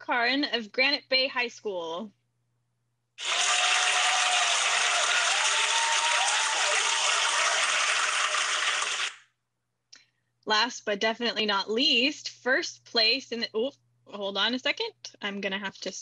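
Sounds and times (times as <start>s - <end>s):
cheering whoops: 3.2s - 9.1s
crowd applause: 3.2s - 9.2s.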